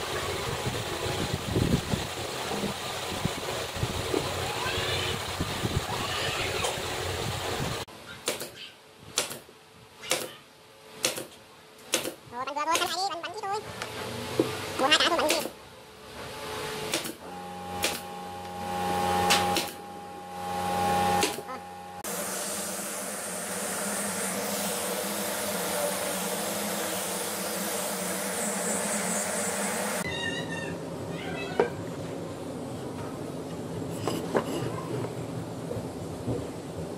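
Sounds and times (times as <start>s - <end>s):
brad nailer shots into wood: 9.2s - 10.3s, 11.0s - 12.2s, 16.9s - 17.2s, 17.8s - 18.1s
steady hum: 17.2s - 30.1s.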